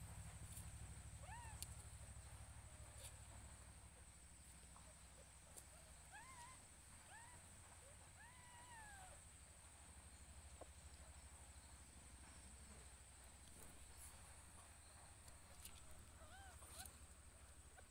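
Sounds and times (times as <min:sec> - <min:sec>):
kittens mewing: 0:01.2 - 0:01.6, 0:06.1 - 0:07.5, 0:16.1 - 0:17.0.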